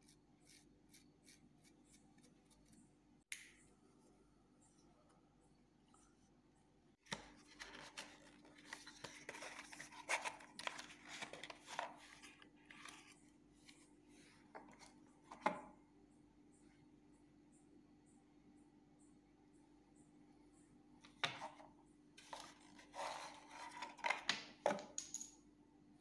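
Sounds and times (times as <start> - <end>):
cardboard and paper rustling: 7.0 - 13.9, 22.2 - 24.3.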